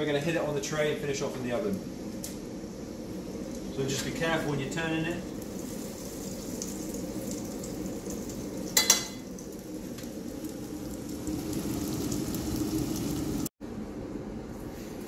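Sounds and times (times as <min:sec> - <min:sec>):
tofu sizzling in hot oil: 0:05.4 - 0:13.5
spatula clattering on metal tray: 0:08.8 - 0:09.2.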